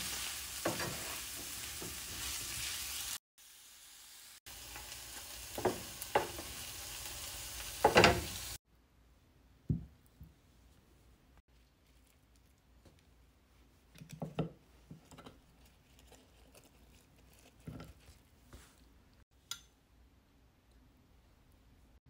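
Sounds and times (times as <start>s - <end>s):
food rustling: 11.5s - 13.2s, 14.9s - 19.0s.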